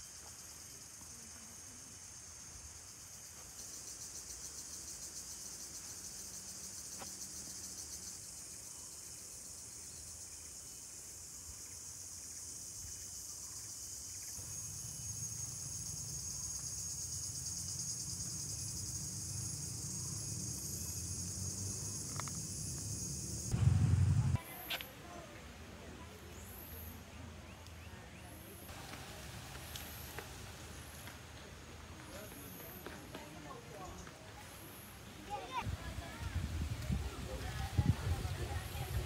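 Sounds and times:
insects chorus: 0.0 - 25.2, 26.0 - 39.0
low rumble: 23.4 - 24.4.

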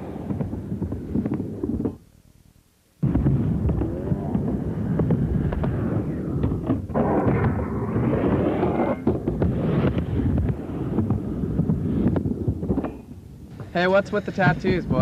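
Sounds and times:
skateboard wheels rumbling: 3.2 - 13.9.

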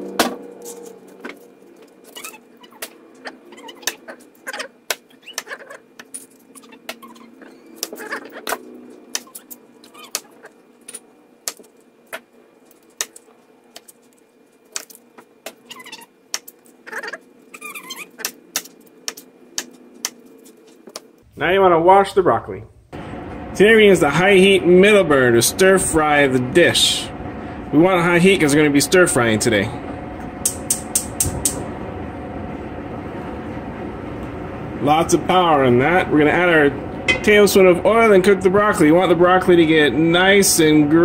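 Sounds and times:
stems squeaking when sliced: 0.7 - 14.1, 14.7 - 21.0.

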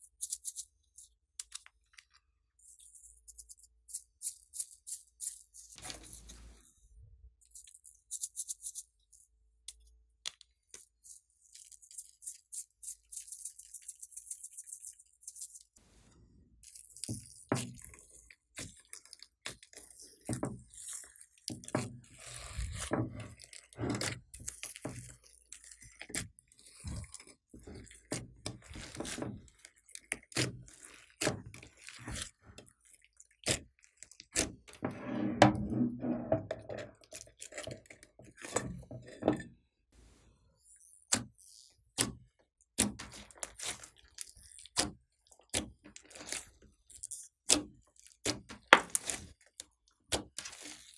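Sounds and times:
slime squishing: 16.6 - 34.8.

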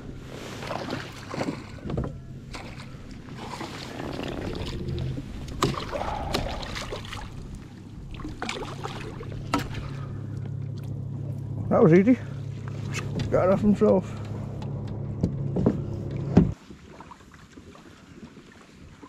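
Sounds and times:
water splashing: 0.0 - 11.5.

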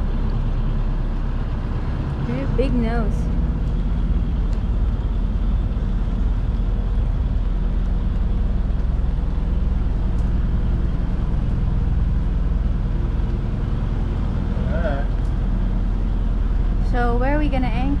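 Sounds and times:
boat engine rumble: 0.0 - 18.0.

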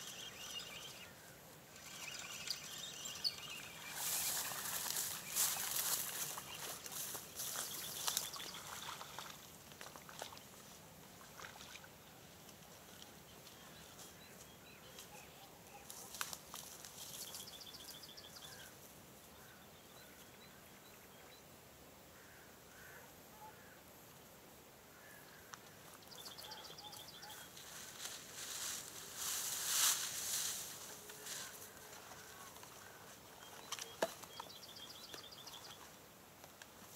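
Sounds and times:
rapid ticking bird trill: 0.0 - 1.1, 1.8 - 4.8
small birds calling: 0.0 - 9.3, 25.0 - 28.1, 30.8 - 36.0.

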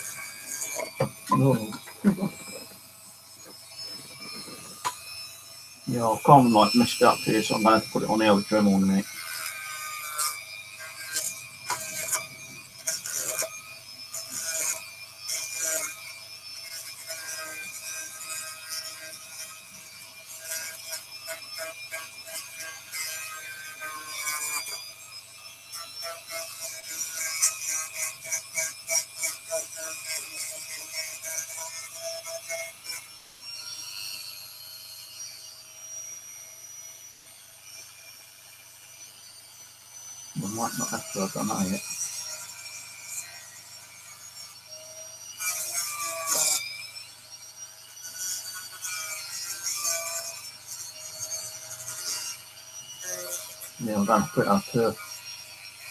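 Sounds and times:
bit scraping cork: 0.0 - 2.7
rotary tool whining: 0.0 - 55.9
sanding bit grinding cork: 0.0 - 55.9.

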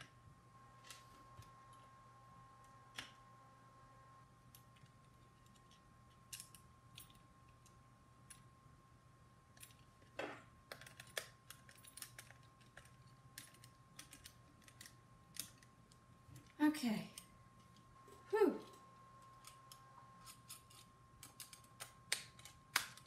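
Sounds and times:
faint electrical hum: 0.0 - 23.0
plastic parts clicking and tapping: 9.6 - 16.5.

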